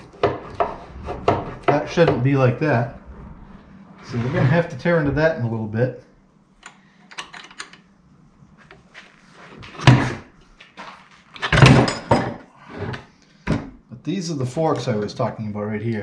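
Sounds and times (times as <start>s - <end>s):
metal clunks and knocks: 0.0s - 2.4s.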